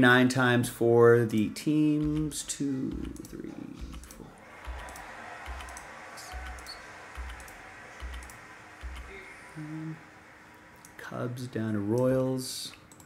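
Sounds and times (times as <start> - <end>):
computer mouse clicks: 2.0 - 9.1, 12.7 - 13.0.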